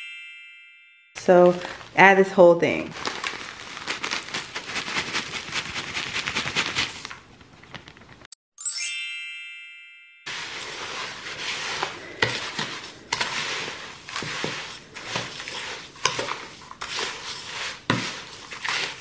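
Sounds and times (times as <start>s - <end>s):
spoon stirring dry salts: 10.3s - 19.0s.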